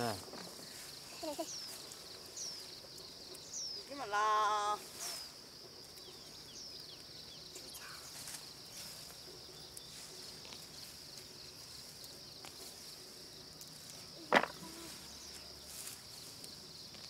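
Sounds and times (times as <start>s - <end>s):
plants rustling and snapping: 13.6s - 14.9s
high-pitched insect buzz: 14.1s - 16.2s.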